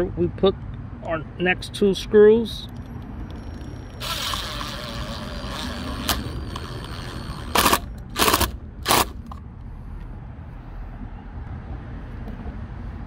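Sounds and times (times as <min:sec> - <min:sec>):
drill click: 0:02.7 - 0:09.4
drill motor whining: 0:03.3 - 0:09.0
drill driving screws: 0:03.6 - 0:09.2.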